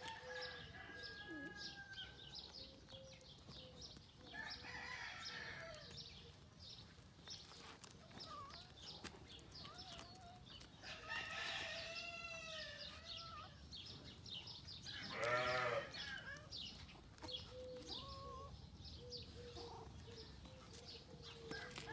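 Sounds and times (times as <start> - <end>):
goat bleating: 15.1 - 15.9.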